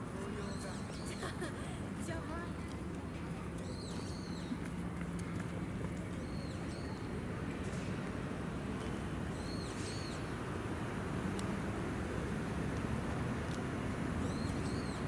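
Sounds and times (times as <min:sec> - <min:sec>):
outdoor background noise: 0:00.0 - 0:15.0
small birds chirping: 0:03.6 - 0:04.6, 0:09.3 - 0:10.3, 0:14.2 - 0:15.0.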